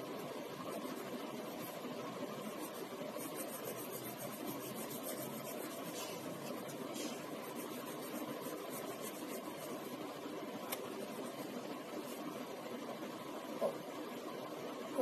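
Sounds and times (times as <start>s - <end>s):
pencil scratching on paper: 0.0s - 10.0s, 10.9s - 12.3s
steady background hiss: 0.0s - 15.0s.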